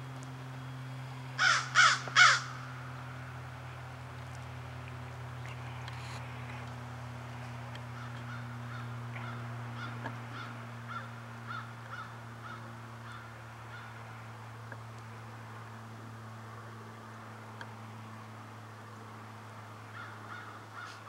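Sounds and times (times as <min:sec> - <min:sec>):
steady low hum: 0:00.0 - 0:21.0
faint bird calls: 0:00.4 - 0:03.4, 0:07.4 - 0:14.2, 0:19.8 - 0:21.0.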